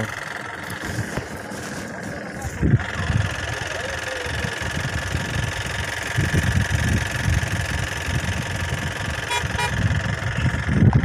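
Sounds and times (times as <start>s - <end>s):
vehicle engine and road noise: 0.0s - 11.0s
vehicle horn toots: 9.2s - 9.9s.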